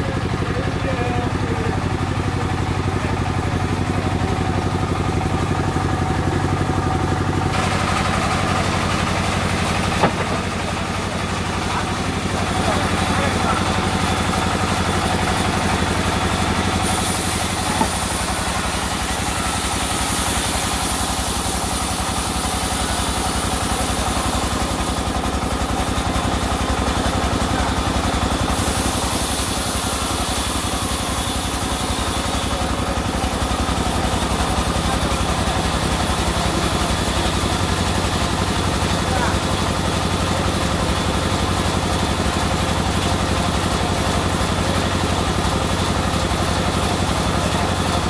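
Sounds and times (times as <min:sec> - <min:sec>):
engine idling: 0:00.0 - 0:48.0.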